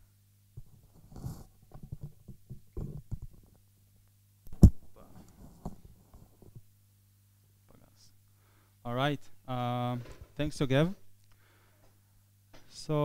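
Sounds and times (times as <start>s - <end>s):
low electrical hum: 0.0s - 13.0s
microphone handling rustles: 0.6s - 3.6s, 4.5s - 6.7s.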